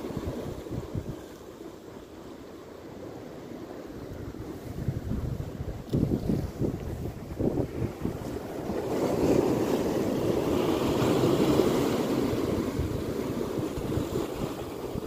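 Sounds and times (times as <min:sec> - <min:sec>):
wind buffeting microphone: 0:00.0 - 0:01.3, 0:03.9 - 0:15.0
sea waves breaking over rocks: 0:00.0 - 0:15.0.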